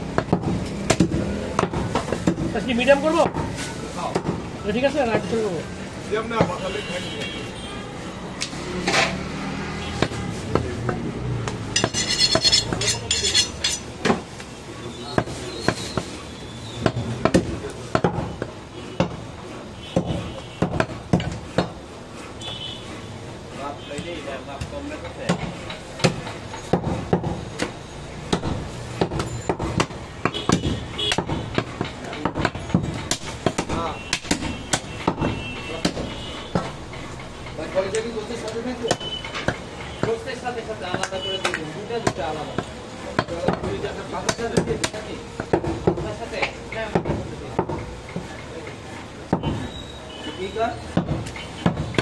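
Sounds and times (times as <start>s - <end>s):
cleaver chopping meat and bone: 0.0s - 2.5s, 16.8s - 19.2s, 20.0s - 21.8s, 24.6s - 36.8s, 37.9s - 48.4s, 50.8s - 52.0s.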